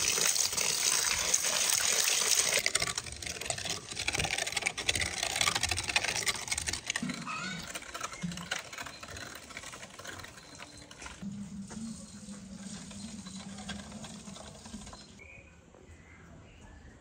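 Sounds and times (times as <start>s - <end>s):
hand-cranked meat grinder clicking: 0.0s - 11.2s.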